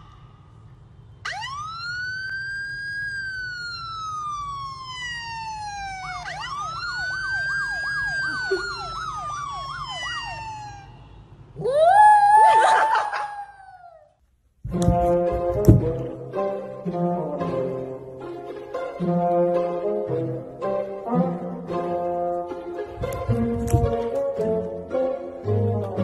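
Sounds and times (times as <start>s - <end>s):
police siren wail and yelp: 1.2s - 11.0s, 11.6s - 14.1s.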